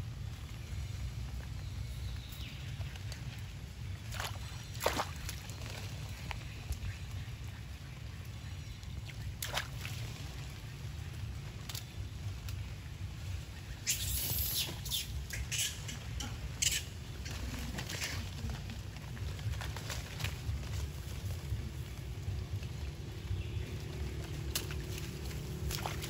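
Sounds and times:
monkey squeaking: 13.9s - 18.1s
low rumble: 15.1s - 26.0s.

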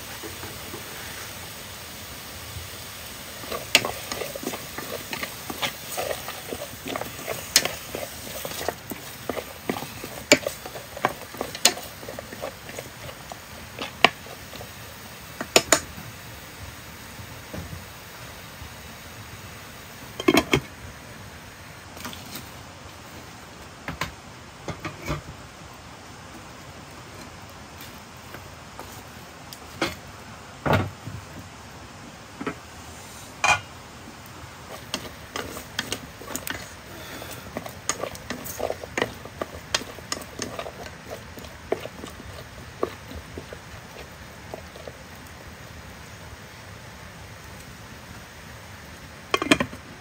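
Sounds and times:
steady low hiss: 0.0s - 50.0s
chopsticks stirring in metal pot: 3.1s - 15.9s, 34.6s - 45.2s
pot lids knocking and clinking: 15.4s - 15.9s, 20.2s - 20.7s.

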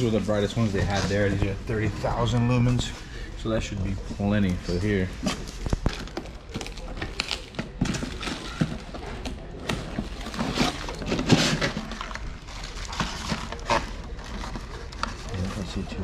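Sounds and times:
clatter of objects being handled: 4.5s - 15.9s
rustling: 5.0s - 16.0s.

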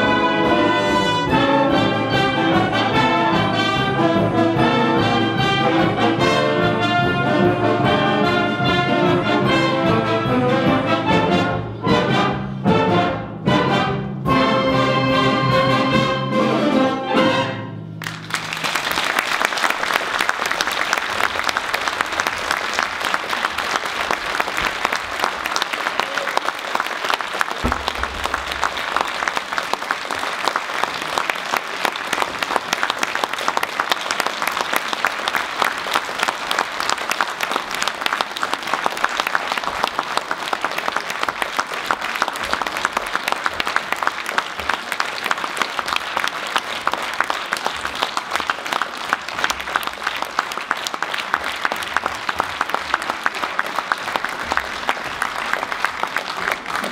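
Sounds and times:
audience applauding: 18.0s - 56.9s
low thump: 27.6s - 29.0s.

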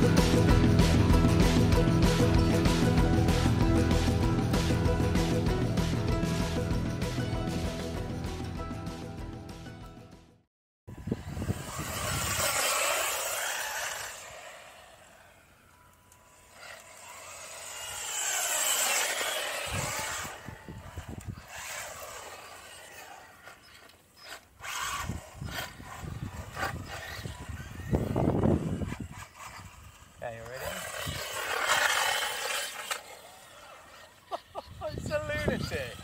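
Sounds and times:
rc car motor whine and tyres: 10.9s - 36.0s.

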